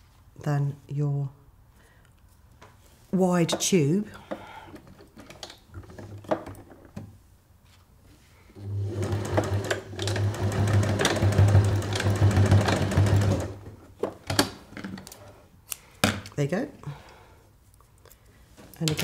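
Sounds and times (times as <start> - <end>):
sewing machine stitching: 8.6 - 13.7.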